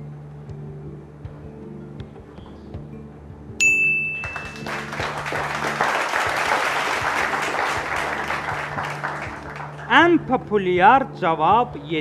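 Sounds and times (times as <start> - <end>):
soft background music: 0.0 - 12.0
bright chime ding: 3.6 - 4.7
audience applause: 4.2 - 10.1.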